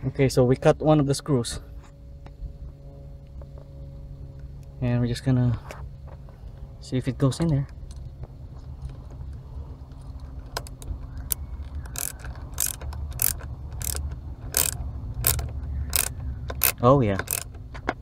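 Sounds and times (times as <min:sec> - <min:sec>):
screwdriver ratchet clicking: 0:10.7 - 0:17.6.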